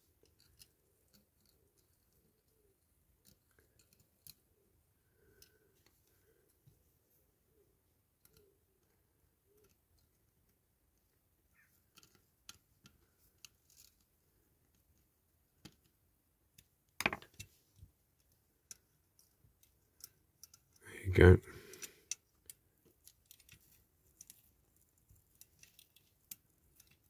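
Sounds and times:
small toy parts clicking: 0:00.2 - 0:02.6, 0:11.8 - 0:14.0, 0:18.2 - 0:20.8, 0:21.8 - 0:27.0.

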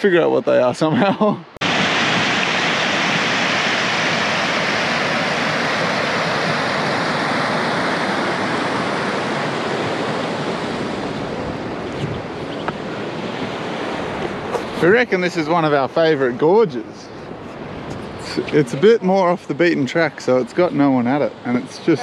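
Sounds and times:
water rushing over rocks: 0:01.6 - 0:15.8.

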